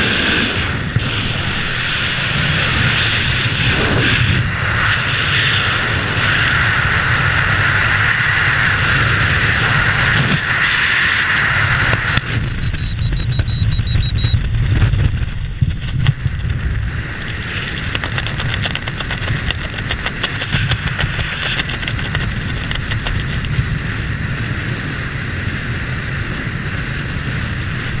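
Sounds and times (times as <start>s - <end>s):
wind rushing over microphone: 0.0s - 28.0s
parachute fabric fluttering: 14.6s - 23.9s.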